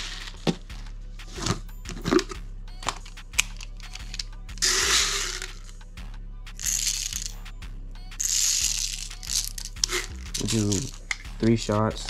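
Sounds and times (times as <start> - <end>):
plastic bbs rattling: 1.4 - 5.7, 6.6 - 7.4, 8.2 - 11.3.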